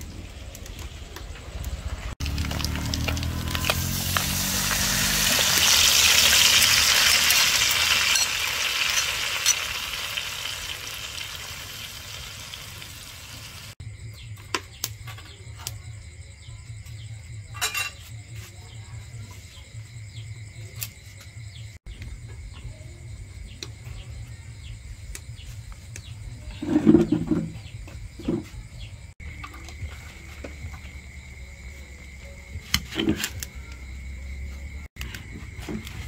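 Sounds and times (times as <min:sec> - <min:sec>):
sauce sizzling in a wok: 0:02.2 - 0:13.8.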